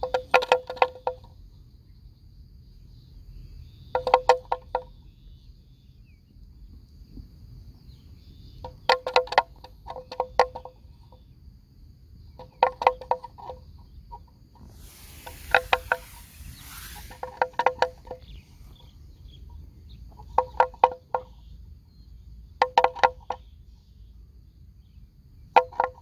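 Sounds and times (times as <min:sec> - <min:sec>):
high insect drone: 0:00.0 - 0:26.0
brief rush of noise: 0:14.6 - 0:18.8.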